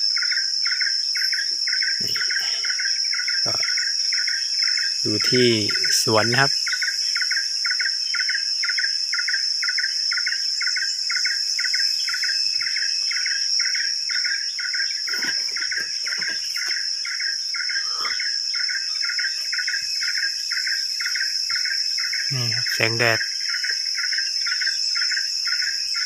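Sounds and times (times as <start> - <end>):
insect chirp pulsing: 0.0 - 26.0
insects droning: 0.0 - 26.0.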